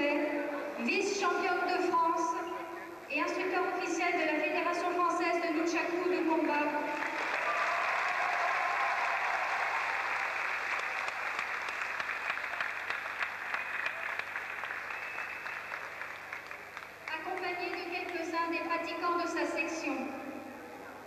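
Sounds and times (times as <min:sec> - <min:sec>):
audience applauding: 0:06.9 - 0:17.4.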